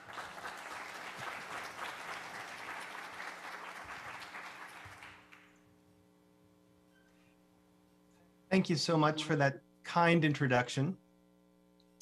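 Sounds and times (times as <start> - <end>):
audience applauding: 0.0 - 5.5
faint steady hum: 0.0 - 12.0.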